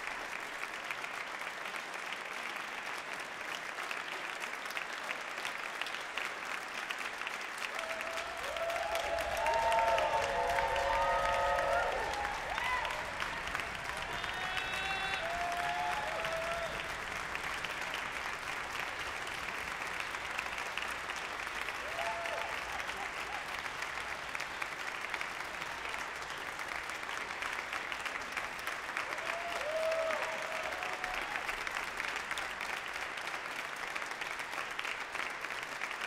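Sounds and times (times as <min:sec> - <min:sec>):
audience applauding: 0:00.0 - 0:36.0
crowd shouts: 0:07.8 - 0:16.9, 0:29.1 - 0:31.4.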